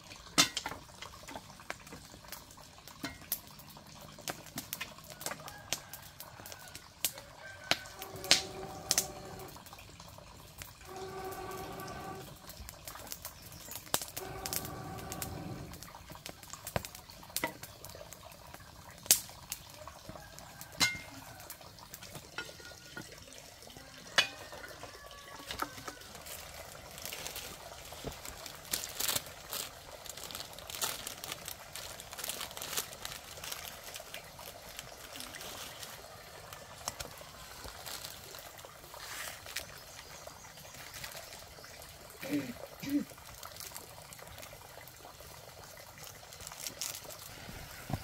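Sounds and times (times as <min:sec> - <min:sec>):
fire crackling: 0:00.0 - 0:22.5, 0:24.2 - 0:48.0
faint hiss: 0:13.5 - 0:16.1, 0:46.6 - 0:48.0.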